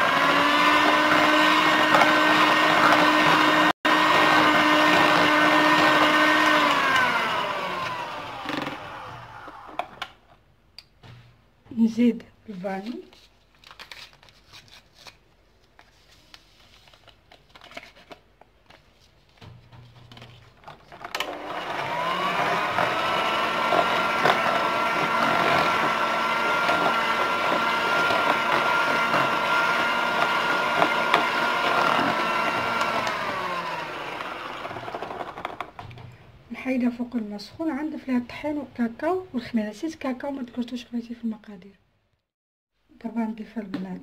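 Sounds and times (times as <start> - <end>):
electric hand mixer whirring: 0.0 - 10.1, 21.1 - 35.9.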